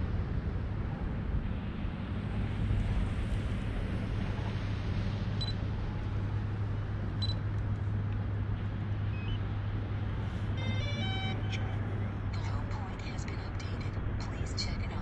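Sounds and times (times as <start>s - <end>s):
low background rumble: 0.0s - 15.0s
drone electronic beeps: 9.1s - 9.5s, 10.6s - 11.9s
stepped beeping tones: 10.6s - 11.6s.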